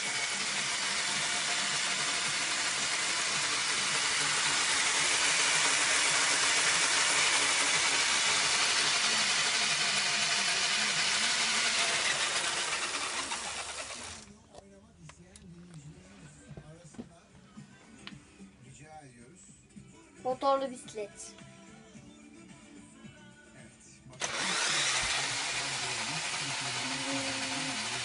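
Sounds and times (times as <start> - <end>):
cordless drill whirring: 0.0 - 14.3, 24.2 - 28.0.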